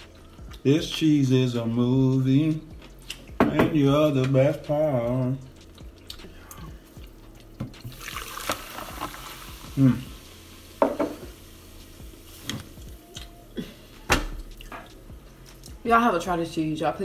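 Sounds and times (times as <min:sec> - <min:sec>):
wet chewing: 0:00.0 - 0:01.1, 0:02.0 - 0:03.4, 0:04.0 - 0:09.5, 0:12.5 - 0:13.5, 0:14.3 - 0:15.8
person humming mm: 0:09.7 - 0:10.2, 0:12.8 - 0:14.1.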